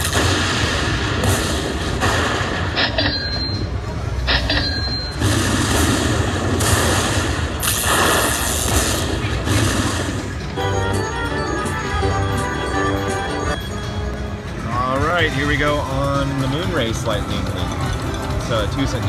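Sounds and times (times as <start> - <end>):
slot machine crackling and booms: 0.0 - 13.6.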